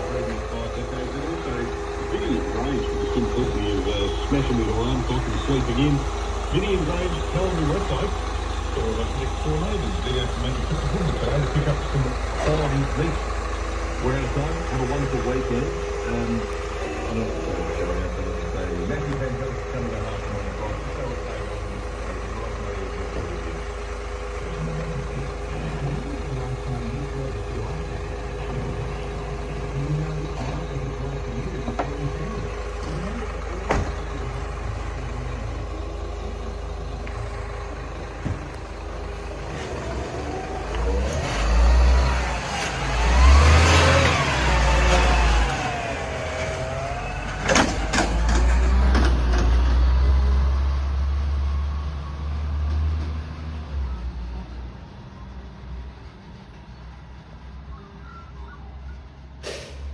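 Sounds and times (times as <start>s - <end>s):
diesel truck engine: 0.0s - 59.9s.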